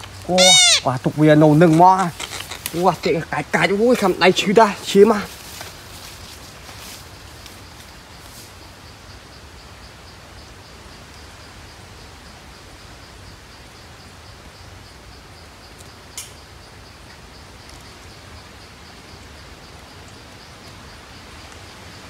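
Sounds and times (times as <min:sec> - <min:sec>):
insect chirping: 0:00.0 - 0:22.0
woodland background hiss: 0:00.0 - 0:22.0
sharp click: 0:16.1 - 0:16.4.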